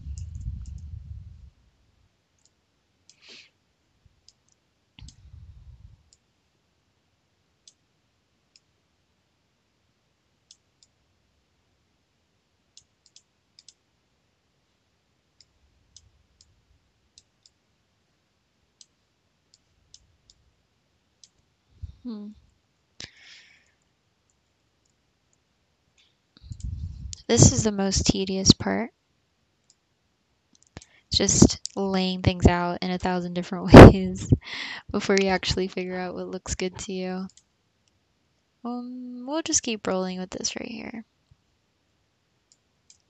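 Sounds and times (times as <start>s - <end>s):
soft low rumble: 0.0s - 1.8s, 5.0s - 6.1s, 26.4s - 28.7s, 31.2s - 37.2s
computer mouse clicking: 0.1s - 0.9s, 2.4s - 3.3s, 4.2s - 5.2s, 7.6s - 7.8s, 10.4s - 11.0s, 12.7s - 13.8s, 15.4s - 17.6s, 18.8s - 20.4s, 21.2s - 21.5s, 30.5s - 31.8s, 37.3s - 38.0s, 42.5s - 43.0s.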